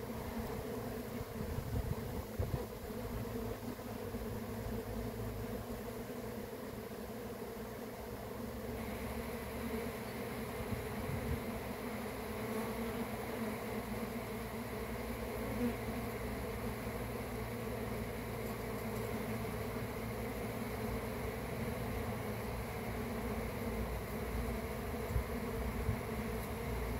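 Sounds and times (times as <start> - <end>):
honeybees buzzing: 0.0 - 26.9.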